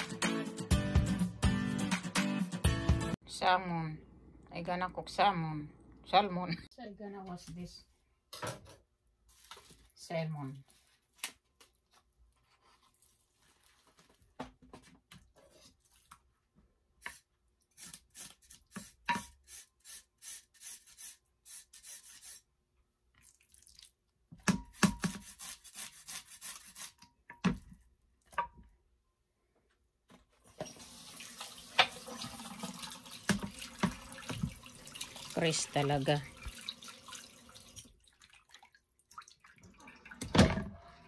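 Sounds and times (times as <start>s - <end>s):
tap running water into sink: 30.5s - 37.9s.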